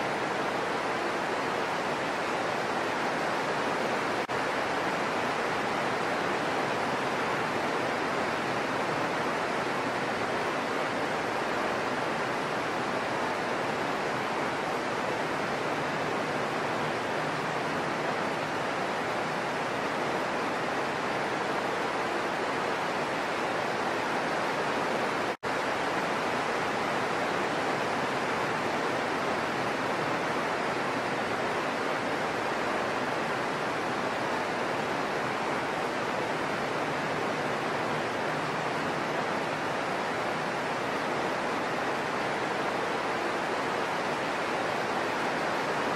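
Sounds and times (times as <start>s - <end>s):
heavy rain falling: 0.0s - 45.9s.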